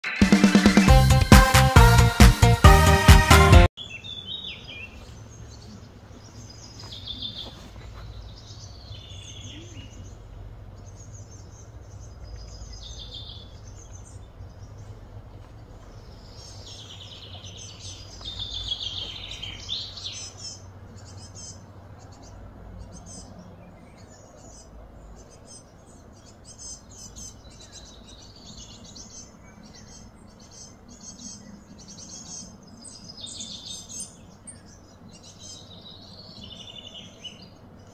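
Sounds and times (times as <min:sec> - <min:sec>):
birds chirping and calling: 0:03.8 - 0:37.9
steady low hum: 0:07.7 - 0:28.2.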